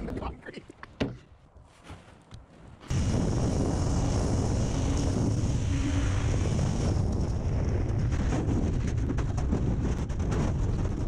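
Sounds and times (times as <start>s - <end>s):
wind buffeting microphone: 2.8s - 11.0s.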